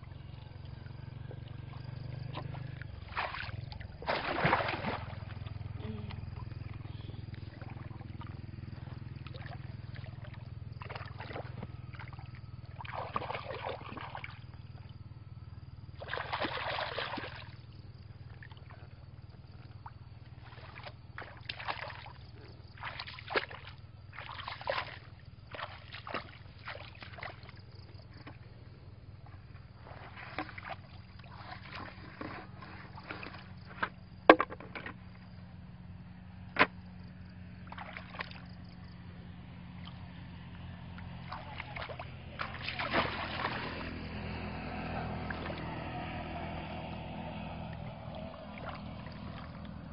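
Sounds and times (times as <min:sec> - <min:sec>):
muddy water splashing: 0:00.0 - 0:34.9, 0:37.6 - 0:49.9
steady low hum: 0:00.0 - 0:49.9.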